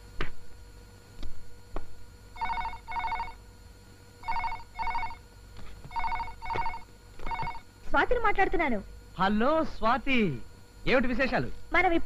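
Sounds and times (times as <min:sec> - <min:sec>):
desk telephone ringing: 0:02.4 - 0:03.4, 0:04.2 - 0:05.2, 0:05.9 - 0:07.6.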